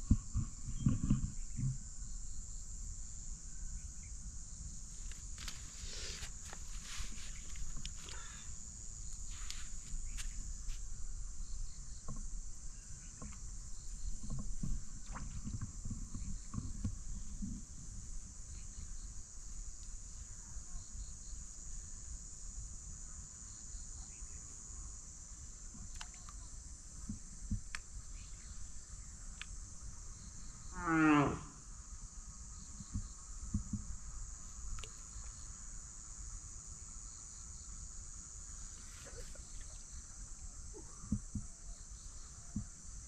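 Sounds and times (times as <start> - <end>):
high-pitched insect chorus: 0.0 - 43.0
faint ticks and clicks: 25.7 - 27.9, 29.3 - 29.6, 34.7 - 35.4.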